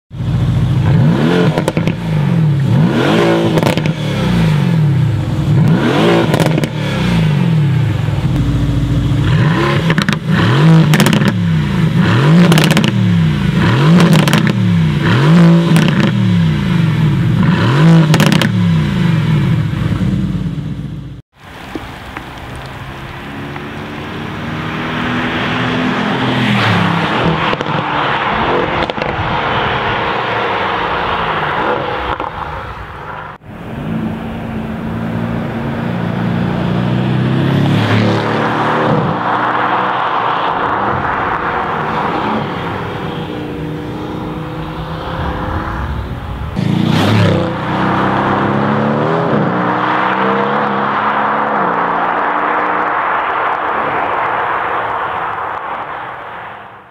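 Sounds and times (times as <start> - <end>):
exhaust cracks: 8.0 - 11.4, 26.4 - 30.0
car engine revving past: 33.7 - 55.2.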